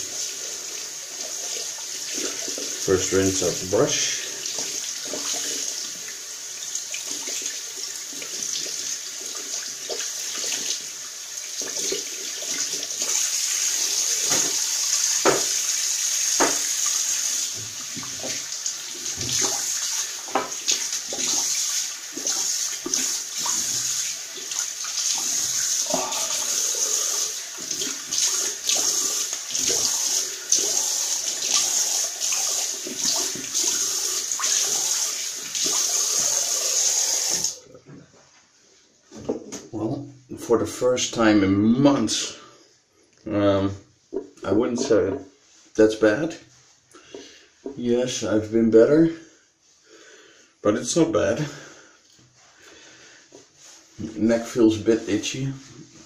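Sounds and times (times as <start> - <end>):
splashes and knocks: 14.2 - 14.6, 15.2 - 15.6, 19.1 - 25.3
tap running into sink: 14.2 - 15.6, 16.3 - 16.9, 17.5 - 24.1.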